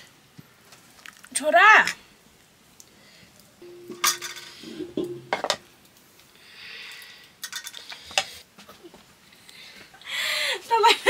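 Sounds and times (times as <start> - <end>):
soft hiss: 0.0 - 11.0
dishes and utensils clinking: 3.7 - 5.7
metal knocking on metal: 3.9 - 5.6.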